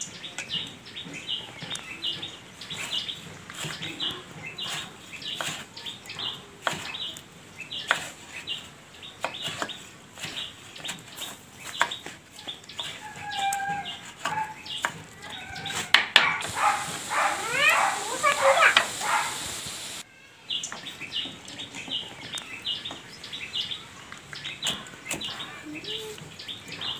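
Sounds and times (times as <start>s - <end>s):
knife chopping on wooden board: 4.6s - 5.7s, 6.6s - 7.0s, 7.8s - 8.2s
chicken clucking: 12.4s - 19.6s.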